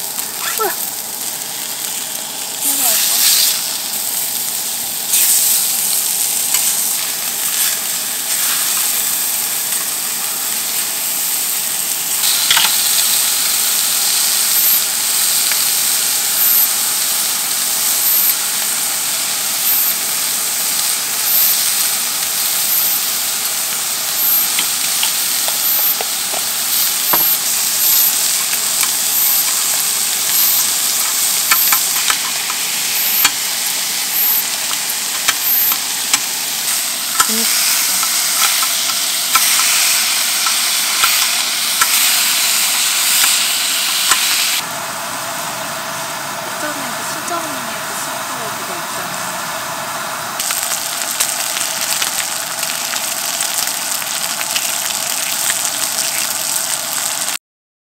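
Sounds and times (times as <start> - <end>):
fish fillets sizzling in a pan: 0.0 - 45.1, 50.0 - 57.4
sharp crackles: 19.6 - 44.6, 50.4 - 57.4
kitchen scissors cutting: 24.5 - 33.4, 34.4 - 44.6.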